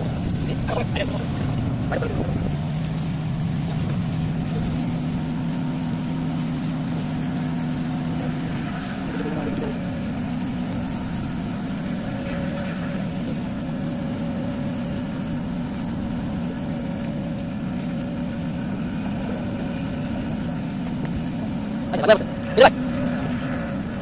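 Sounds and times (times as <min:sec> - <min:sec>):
vehicle engine drone: 0:00.0 - 0:24.0.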